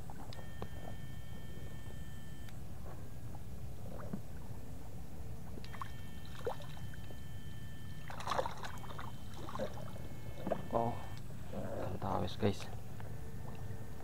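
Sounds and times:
water sloshing and splashing: 2.7s - 10.8s
high-pitched whine: 5.5s - 12.2s.

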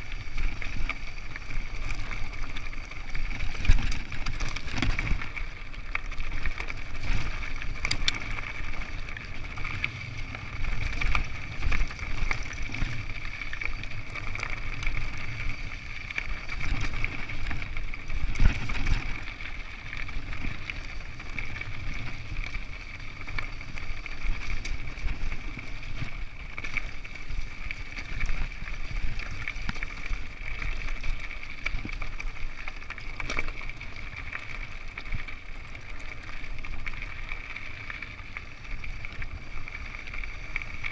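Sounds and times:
bike rattling and knocking: 0.0s - 15.4s
tyres crunching over loose stones: 0.0s - 40.9s
wind rumble on microphone: 0.0s - 40.9s.

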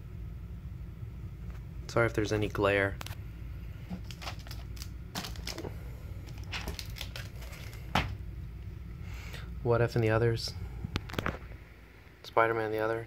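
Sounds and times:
plastic cases clicking and rustling: 3.9s - 5.7s, 6.3s - 8.2s.

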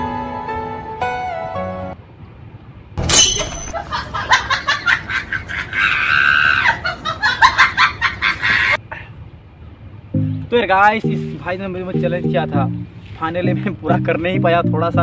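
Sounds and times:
person laughing and crying out: 3.7s - 8.8s.

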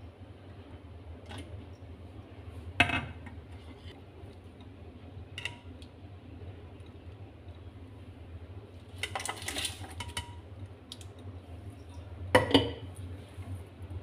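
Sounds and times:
kitchenware clattering: 12.4s - 12.9s.

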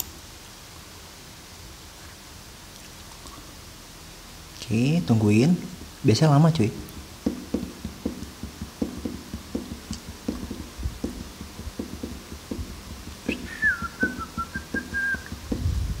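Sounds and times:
person whistling a tune: 13.2s - 15.3s.

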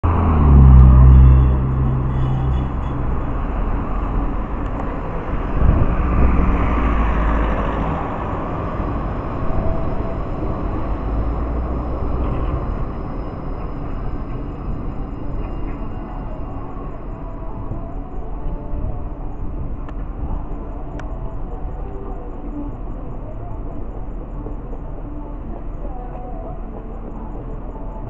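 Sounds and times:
vehicle engine passing loudly: 0.0s - 16.2s
road traffic noise: 0.0s - 28.0s
tram rolling past: 0.0s - 28.0s.

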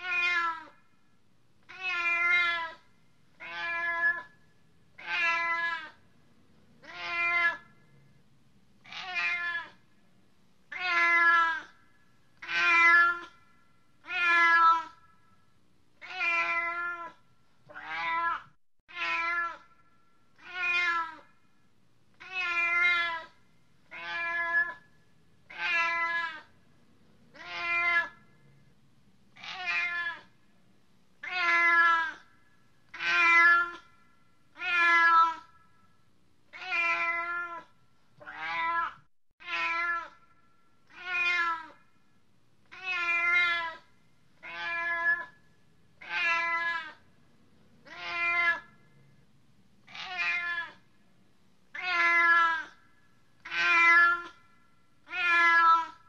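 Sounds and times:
cat meowing: 0.0s - 0.8s, 1.7s - 2.8s, 3.4s - 4.3s, 5.0s - 6.0s, 6.8s - 7.6s, 8.8s - 9.8s, 10.7s - 11.8s, 12.4s - 13.4s, 14.0s - 15.0s, 16.0s - 19.7s, 20.4s - 21.3s, 22.2s - 24.8s, 25.5s - 26.5s, 27.3s - 28.2s, 29.3s - 30.3s, 31.2s - 32.3s, 32.9s - 33.9s, 34.5s - 35.5s, 36.5s - 40.2s, 40.8s - 41.8s, 42.7s - 45.4s, 46.0s - 47.0s, 47.8s - 48.8s, 49.8s - 50.8s, 51.7s - 52.8s, 53.4s - 54.4s, 55.0s - 56.0s.

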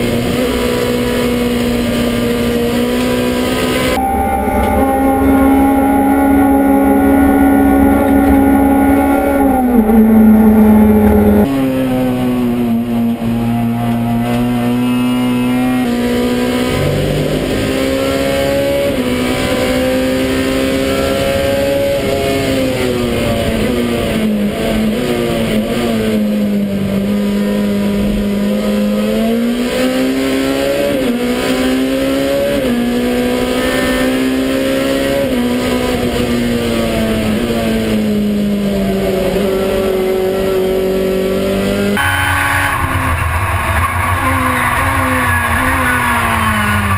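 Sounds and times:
race car engine revving: 0.0s - 46.9s.

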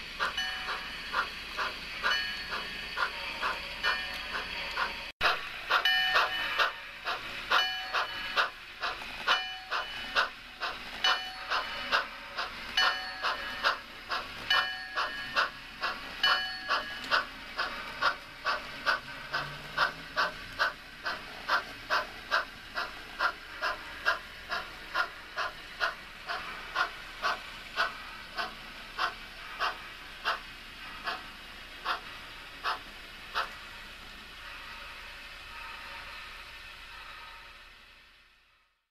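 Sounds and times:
model steam locomotive chuffs: 0.0s - 38.9s
locomotive bell ringing: 0.3s - 1.3s, 2.0s - 5.1s, 5.8s - 8.4s, 9.3s - 10.2s, 11.0s - 12.0s, 12.8s - 13.7s, 14.5s - 15.6s, 16.2s - 17.3s.

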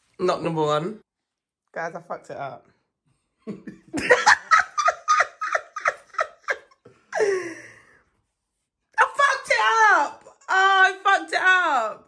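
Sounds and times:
person laughing: 3.5s - 7.8s.

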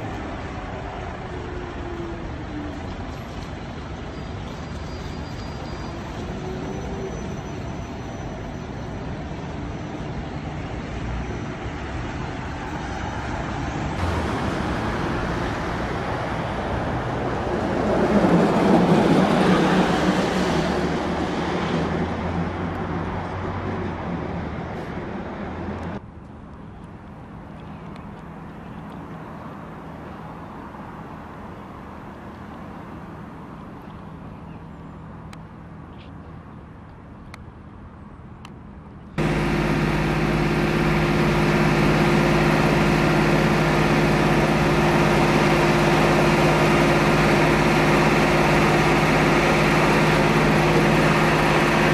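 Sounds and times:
road traffic: 0.0s - 51.9s
vehicle passing close by: 13.9s - 26.0s, 39.2s - 51.9s.

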